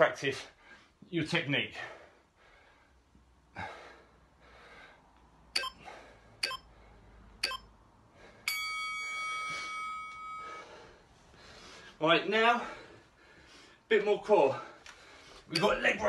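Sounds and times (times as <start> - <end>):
short timer pips: 5.6 - 5.8, 6.4 - 6.6.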